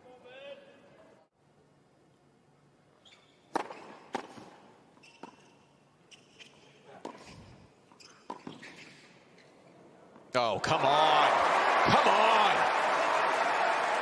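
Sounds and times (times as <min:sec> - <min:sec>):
shoe squeaks: 0:03.0 - 0:03.9, 0:04.9 - 0:09.8
tennis ball bouncing: 0:03.5 - 0:04.5
racquet hitting tennis ball: 0:03.5 - 0:04.6.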